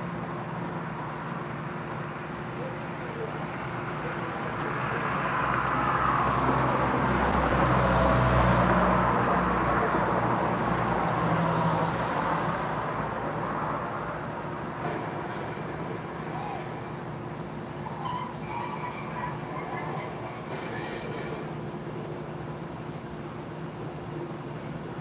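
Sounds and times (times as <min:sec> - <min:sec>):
passing vehicle rumble: 0:03.3 - 0:16.9.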